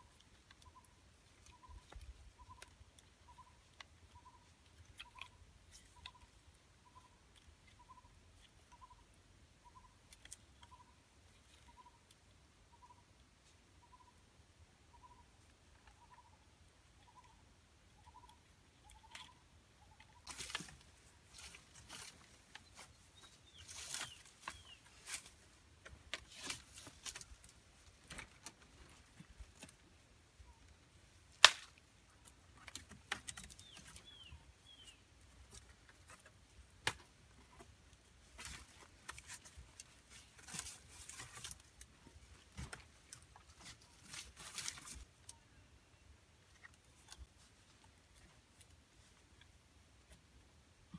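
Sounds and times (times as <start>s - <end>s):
bird chirping: 0.0s - 25.5s, 32.6s - 36.3s
stick snapping: 31.3s - 31.8s.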